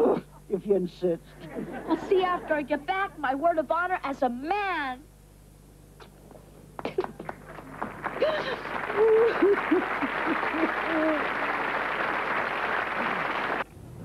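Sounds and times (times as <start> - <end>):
studio audience applauding: 6.8 - 13.7
woman sobbing and whimpering: 8.2 - 11.3.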